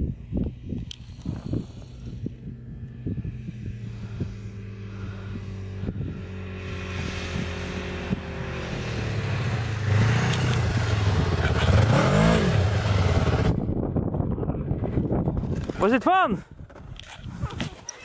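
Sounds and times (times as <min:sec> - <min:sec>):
snowmobile engine running: 0:00.0 - 0:13.8.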